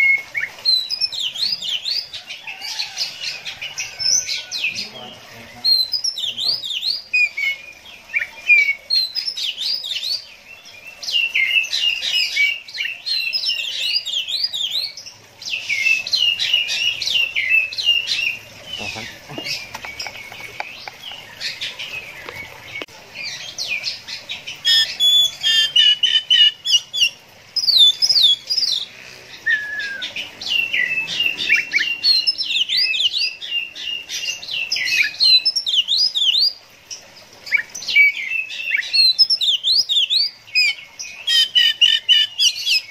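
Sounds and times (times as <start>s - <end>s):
bird singing chirps and whistles: 24.6s - 28.7s, 29.4s - 36.6s, 37.5s - 42.9s.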